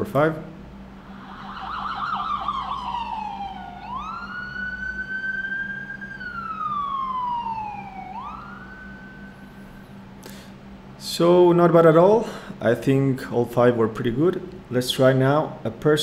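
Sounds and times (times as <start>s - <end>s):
wailing ambulance siren: 1.0s - 10.0s.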